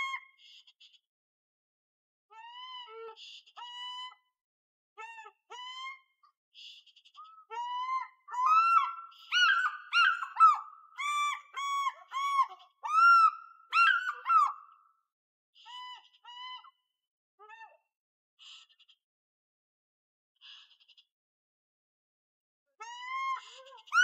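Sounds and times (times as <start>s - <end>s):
eagle yelping calls: 7.9s - 14.6s.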